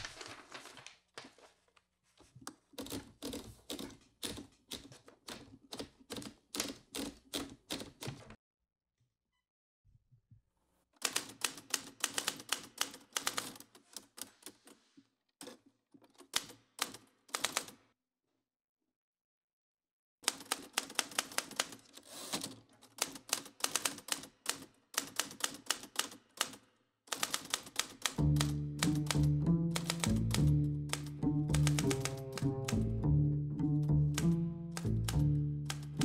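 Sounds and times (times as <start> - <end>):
typewriter key strikes: 31.0 - 32.8.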